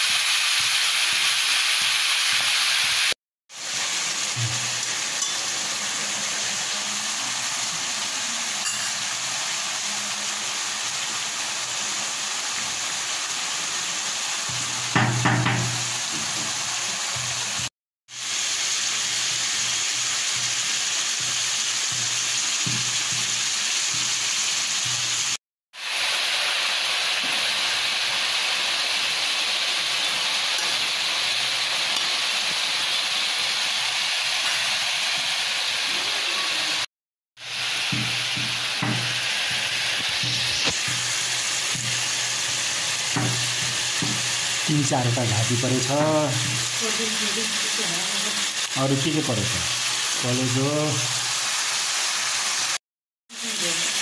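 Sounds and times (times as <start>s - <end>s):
meat sizzling in a wok: 0.0s - 54.0s
knock: 15.0s - 16.5s, 37.9s - 39.1s.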